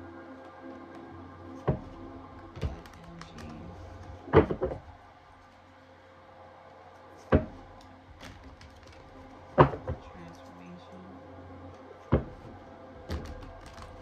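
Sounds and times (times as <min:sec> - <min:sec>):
cards being shuffled: 0:02.5 - 0:04.3, 0:07.2 - 0:09.4, 0:13.1 - 0:14.0.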